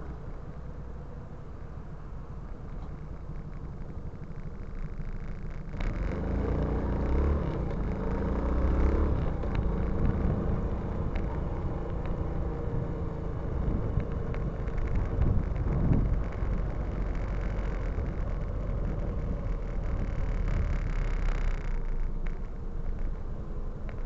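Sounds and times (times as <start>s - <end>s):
wind and road noise: 0.0s - 24.0s
motorcycle engine accelerating: 2.0s - 24.0s.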